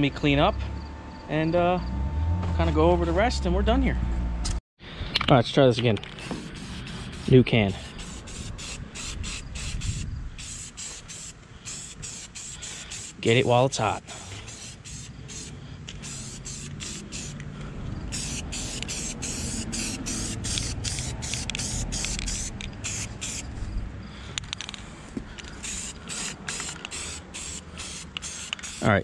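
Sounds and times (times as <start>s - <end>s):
spray paint can hissing: 6.1s - 13.5s, 14.1s - 17.4s, 18.1s - 23.5s, 25.6s - 29.0s.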